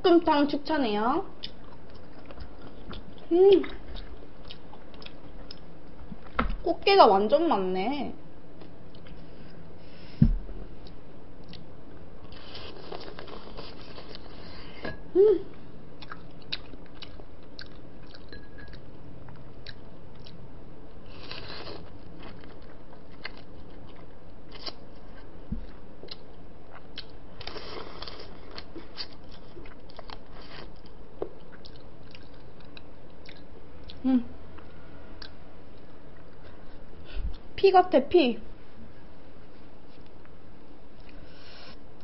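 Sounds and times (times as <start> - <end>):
close-miked chewing: 1.4 - 6.3, 16.0 - 20.4, 21.1 - 37.5.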